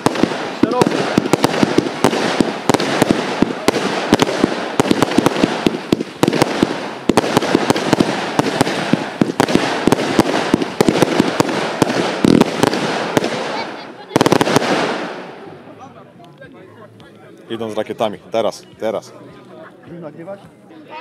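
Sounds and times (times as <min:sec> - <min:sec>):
fireworks bangs and pops: 0:00.0 - 0:15.5
constant hiss: 0:00.0 - 0:21.0.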